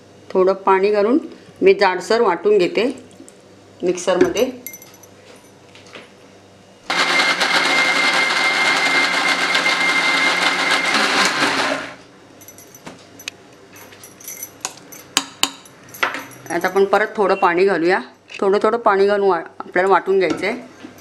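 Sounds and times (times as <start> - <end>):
mixer grinder whining: 6.9 - 12.0.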